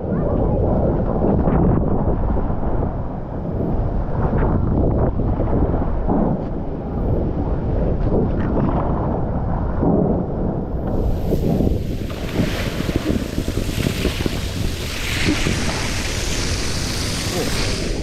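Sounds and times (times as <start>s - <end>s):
wind buffeting microphone: 0.0s - 18.0s
water rushing under tube: 10.9s - 18.0s
water spraying hiss: 10.9s - 18.0s.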